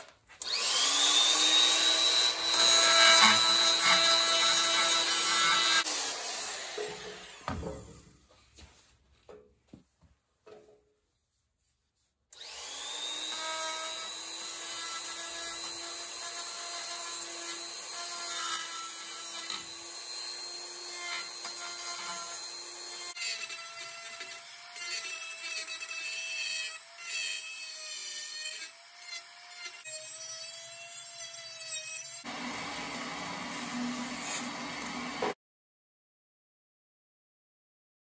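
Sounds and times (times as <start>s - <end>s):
die grinder whining: 0.4s - 7.6s, 12.4s - 35.4s.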